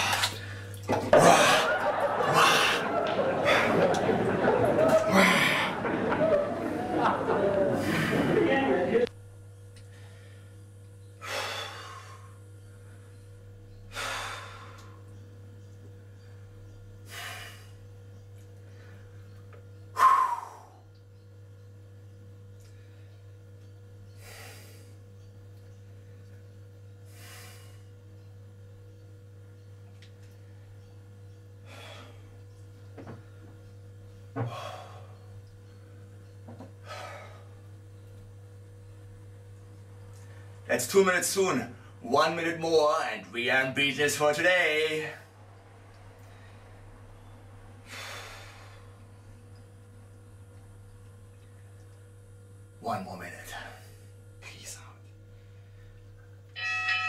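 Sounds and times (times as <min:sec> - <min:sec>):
steady low hum: 0:00.0 - 0:57.0
man breathing sharply: 0:11.2 - 0:12.4, 0:13.9 - 0:15.0, 0:24.2 - 0:25.0, 0:27.1 - 0:27.9, 0:47.8 - 0:49.0.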